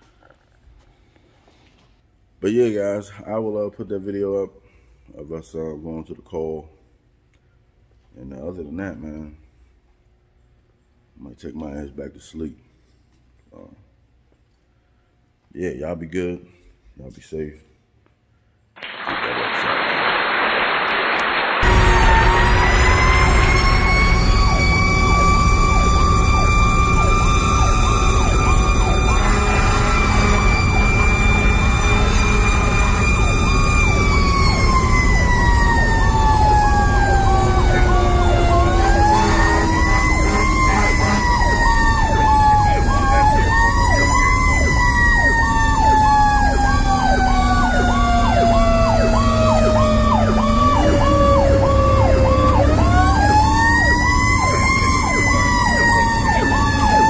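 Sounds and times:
siren wailing: 20.1s - 57.0s
siren tone pulsing rapidly: 20.5s - 57.0s
truck engine running: 21.6s - 57.0s.

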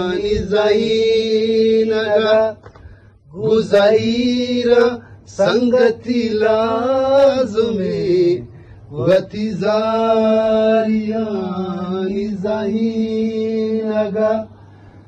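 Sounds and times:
man singing unaccompanied chant: 0.0s - 2.7s, 3.3s - 14.6s
person breathing: 2.7s - 3.2s, 8.5s - 8.9s, 14.6s - 15.0s.

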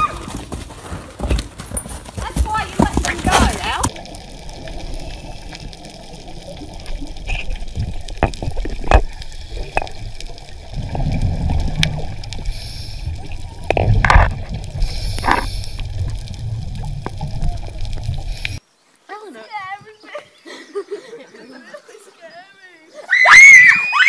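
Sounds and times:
gurgling water and bubbles: 3.6s - 18.6s
underwater rumble: 3.9s - 18.6s.

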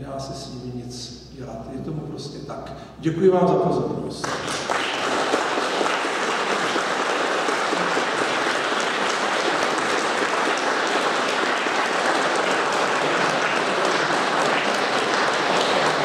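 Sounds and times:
audience applauding: 4.2s - 16.0s.

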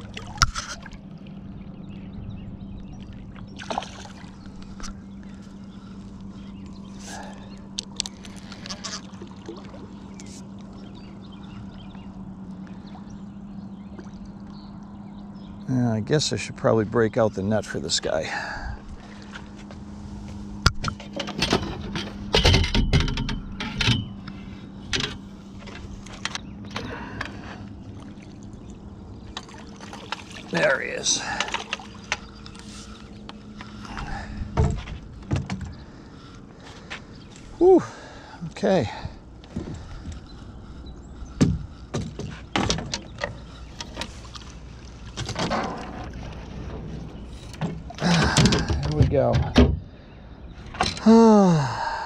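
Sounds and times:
steady low hum: 0.0s - 52.0s
fish thrashing and splashing: 3.5s - 4.6s, 27.9s - 33.0s.

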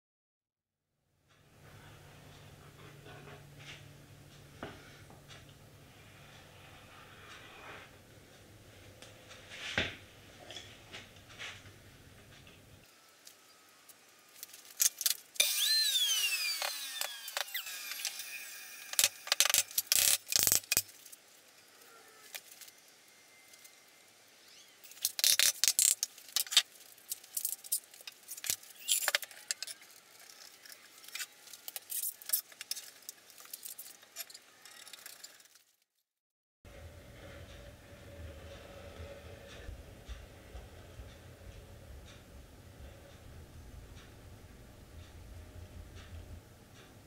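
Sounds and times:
power tool motor whining: 15.4s - 19.6s.

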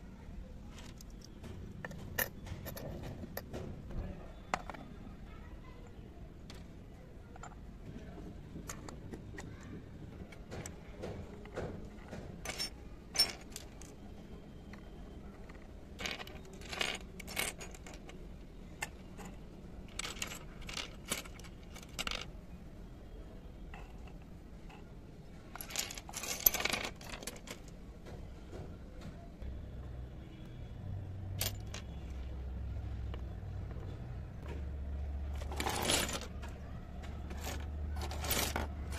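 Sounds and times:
miniature dishes clinking: 10.3s - 14.0s.

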